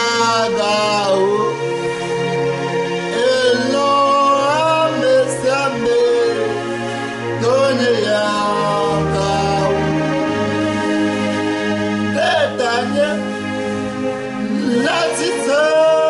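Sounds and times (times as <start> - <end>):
man singing gospel song: 0.0 - 1.6, 3.1 - 10.5, 12.1 - 13.3, 14.4 - 16.0
sustained instrumental chords: 0.0 - 16.0.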